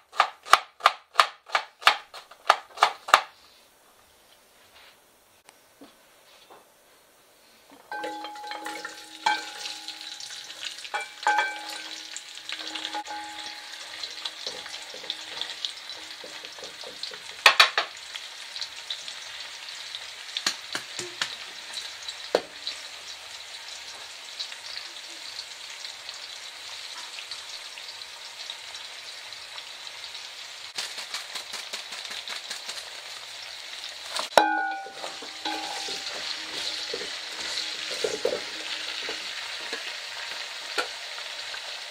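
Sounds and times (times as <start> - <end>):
carrots sizzling in hot oil: 7.8 - 41.9
bowl and spoon clinking on pot: 7.9 - 16.8, 34.3 - 39.2.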